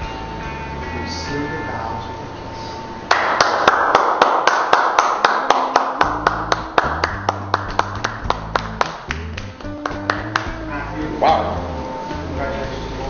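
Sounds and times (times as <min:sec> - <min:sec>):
hand clapping: 0:03.1 - 0:10.7.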